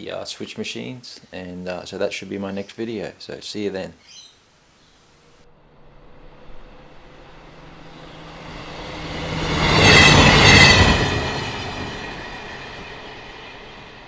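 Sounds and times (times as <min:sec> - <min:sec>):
high squealing tones: 0:05.0 - 0:13.9
train passing rumble: 0:05.1 - 0:14.0.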